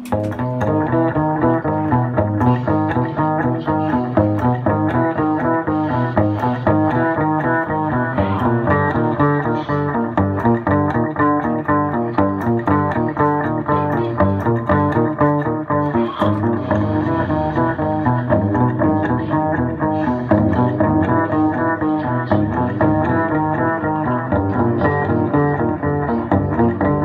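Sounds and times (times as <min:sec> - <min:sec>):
upright double bass playing: 0:00.0 - 0:27.0.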